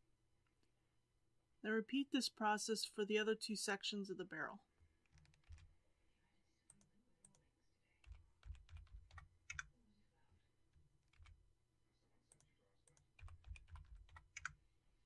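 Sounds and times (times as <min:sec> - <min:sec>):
keyboard keystrokes: 0:05.1 - 0:05.7, 0:08.0 - 0:09.7, 0:12.4 - 0:14.6.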